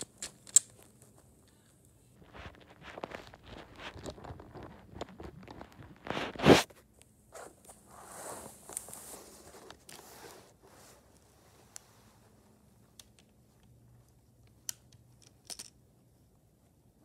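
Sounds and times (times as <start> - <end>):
plastic tiles clicking: 0.0 - 0.8, 14.6 - 15.8
plastic tiles rustling and scraping: 0.0 - 6.6, 14.4 - 15.8.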